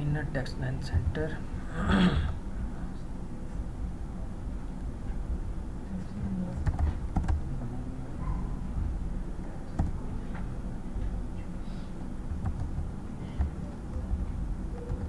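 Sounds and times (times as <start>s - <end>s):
steady low hum: 0.0s - 15.0s
keyboard typing: 6.5s - 7.4s, 9.7s - 10.0s, 12.4s - 15.0s.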